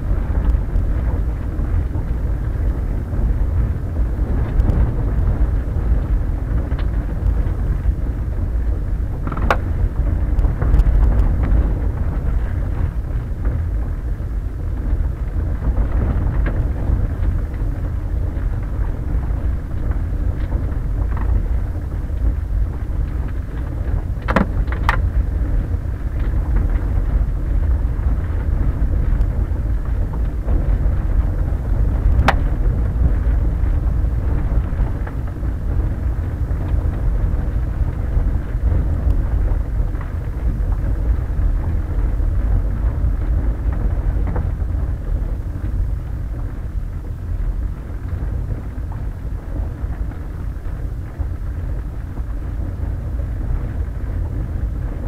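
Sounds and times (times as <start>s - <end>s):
tyres rumbling on gravel: 0.0s - 55.0s
sharp clicks and knocks: 9.2s - 9.7s, 24.2s - 25.1s.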